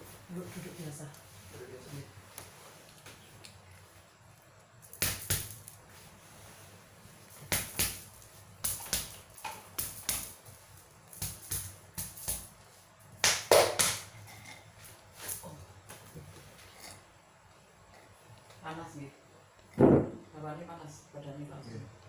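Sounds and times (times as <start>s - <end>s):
hand slapping back: 4.9s - 5.8s, 7.5s - 10.4s, 11.1s - 12.5s, 13.2s - 14.1s.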